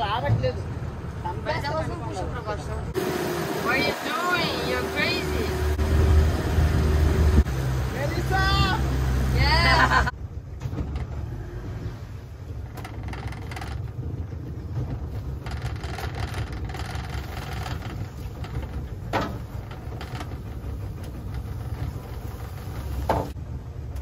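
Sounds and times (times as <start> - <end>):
outboard motor running: 3.0 - 10.1, 12.2 - 23.4.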